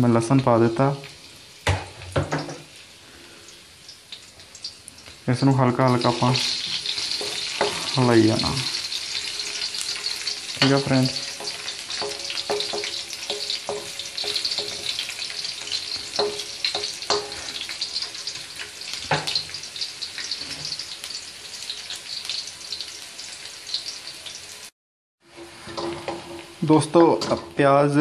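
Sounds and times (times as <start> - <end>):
garlic sizzling in hot oil: 0.0 - 28.0
spatula scraping and knocking a wok: 1.6 - 2.7, 6.0 - 19.6, 25.3 - 27.6.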